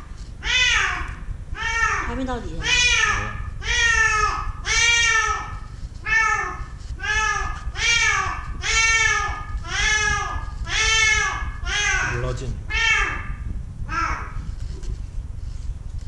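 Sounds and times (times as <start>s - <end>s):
cat meowing: 0.4s - 14.4s.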